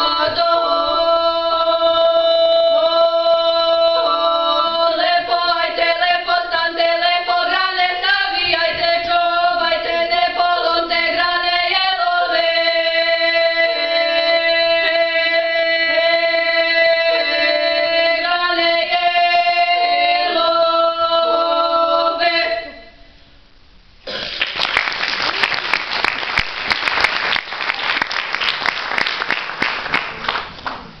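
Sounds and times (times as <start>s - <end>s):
women singing unaccompanied: 0.0s - 23.0s
audience applause: 24.1s - 30.9s.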